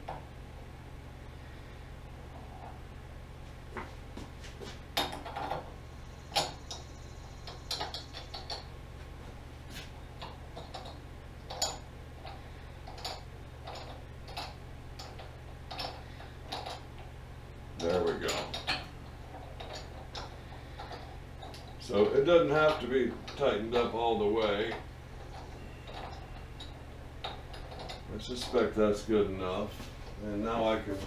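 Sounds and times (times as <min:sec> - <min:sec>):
steady low hum: 0:00.0 - 0:31.0
metal parts clicking and clinking: 0:06.3 - 0:08.7, 0:10.2 - 0:17.0, 0:17.8 - 0:28.7.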